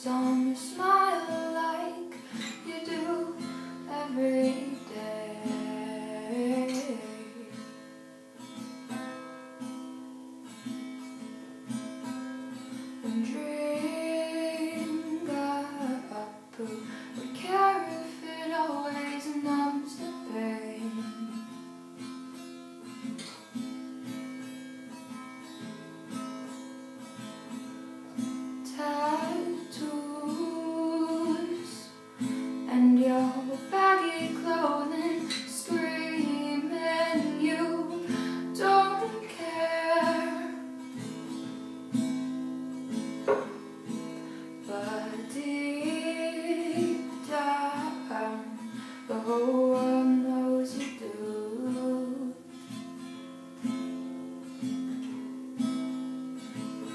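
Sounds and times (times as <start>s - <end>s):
woman singing: 0.0s - 7.7s, 13.0s - 21.6s, 28.6s - 40.7s, 44.6s - 52.5s
acoustic guitar: 0.0s - 56.9s.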